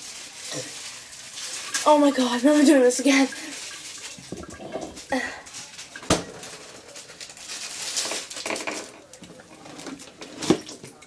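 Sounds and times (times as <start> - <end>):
person sipping and spluttering: 3.7 - 5.5.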